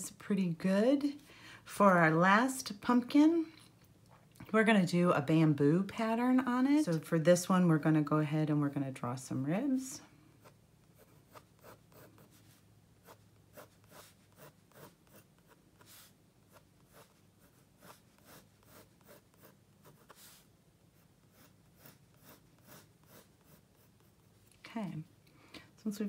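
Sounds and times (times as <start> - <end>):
pencil scratching on paper: 10.4 - 24.2.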